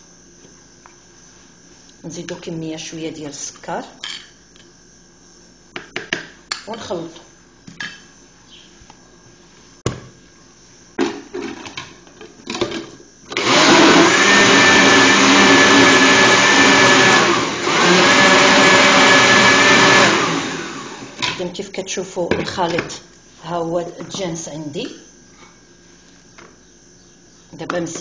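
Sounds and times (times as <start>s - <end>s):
blender motor whining: 13.2s - 21.2s.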